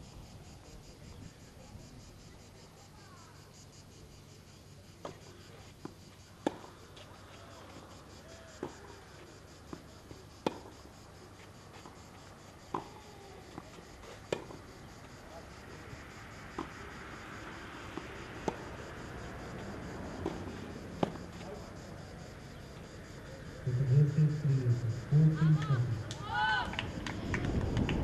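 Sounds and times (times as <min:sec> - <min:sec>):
insect drone: 0:00.0 - 0:28.0
tennis ball bouncing on clay: 0:06.4 - 0:06.7, 0:09.7 - 0:10.8, 0:17.8 - 0:18.9, 0:19.6 - 0:21.5
racket hitting tennis ball: 0:18.0 - 0:18.8, 0:20.2 - 0:21.4.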